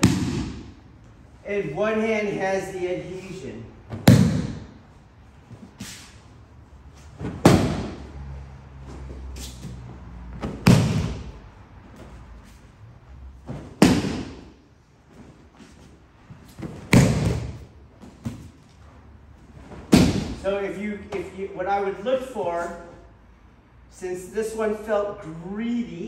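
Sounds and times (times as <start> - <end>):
body slapping a mat: 0.0 - 0.8, 3.9 - 4.8, 7.0 - 8.2, 8.9 - 12.2, 13.4 - 15.8, 16.4 - 18.8, 19.6 - 20.4.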